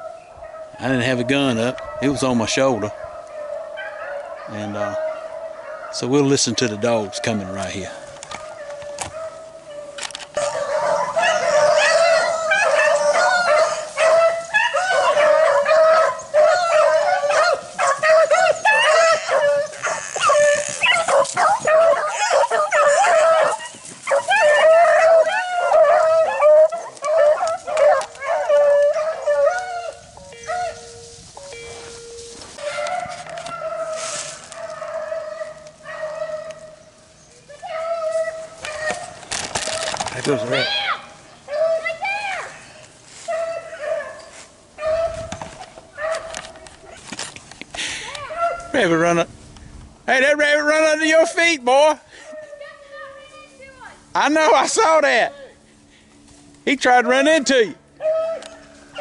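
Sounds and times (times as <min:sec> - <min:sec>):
dogs baying: 0:00.0 - 0:40.7, 0:41.4 - 0:47.3, 0:48.1 - 0:48.8, 0:56.6 - 0:59.0
sharp crackles: 0:38.1 - 0:40.7.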